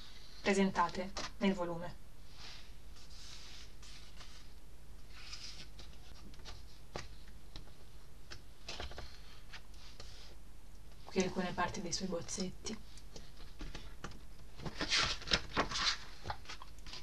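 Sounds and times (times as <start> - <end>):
book pages turning: 3.0 - 4.5, 5.1 - 10.3, 14.6 - 17.0.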